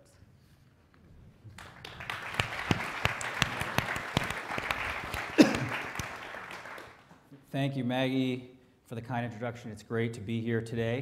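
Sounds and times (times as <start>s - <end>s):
audience applauding: 1.5s - 7.3s.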